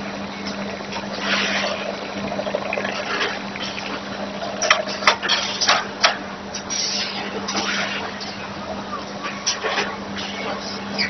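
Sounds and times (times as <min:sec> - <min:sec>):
machine hum and hiss: 0:00.0 - 0:11.0.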